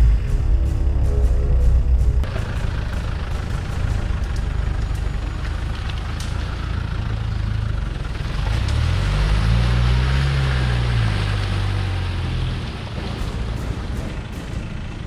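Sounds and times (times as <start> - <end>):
car engine revving: 0.0 - 12.8.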